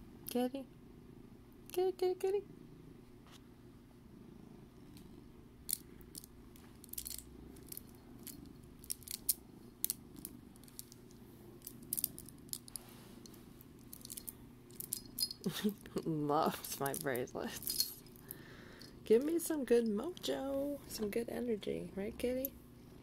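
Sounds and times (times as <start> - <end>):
cat purring: 0.1 - 23.0
beads clicking together: 5.7 - 15.8.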